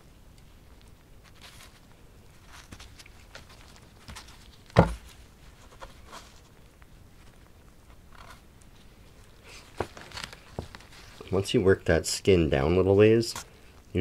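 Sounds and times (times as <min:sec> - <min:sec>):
gloved hands rustling: 0:00.7 - 0:14.0
loud thump: 0:04.8 - 0:05.0.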